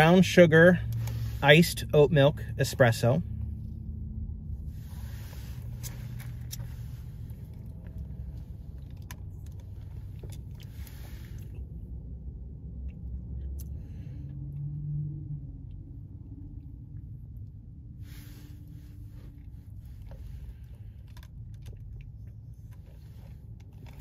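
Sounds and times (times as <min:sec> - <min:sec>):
car engine idling: 0:00.0 - 0:14.5.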